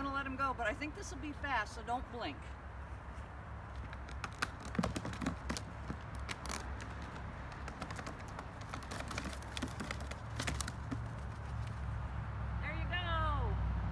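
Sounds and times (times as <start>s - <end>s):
box clicks and taps: 3.8s - 11.2s.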